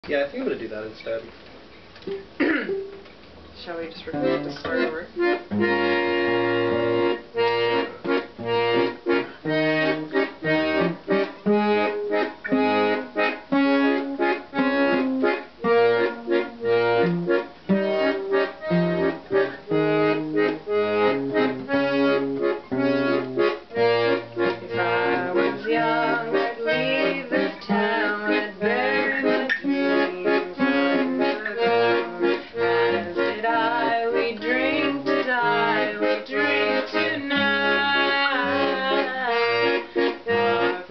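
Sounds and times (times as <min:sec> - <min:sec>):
piano accordion: 0:03.6 - 0:40.9
strummed acoustic guitar: 0:03.8 - 0:40.9
woman singing: 0:24.5 - 0:40.9.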